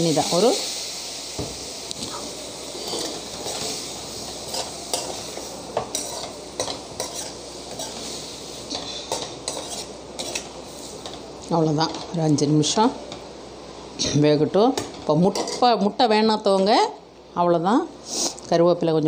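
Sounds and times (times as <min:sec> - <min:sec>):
food sizzling in hot oil: 0:00.0 - 0:16.9
steel spoon scraping a pan: 0:02.7 - 0:11.2.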